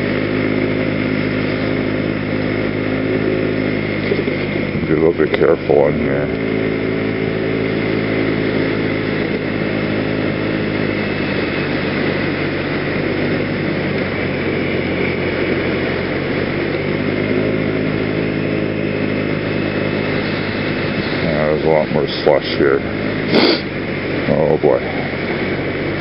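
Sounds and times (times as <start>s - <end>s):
scooter engine running: 0.0s - 26.0s.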